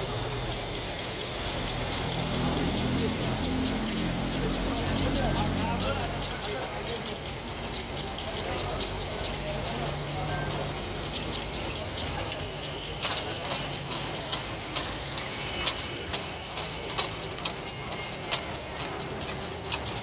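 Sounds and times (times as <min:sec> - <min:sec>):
mince sizzling in fat: 0:11.5 - 0:19.2.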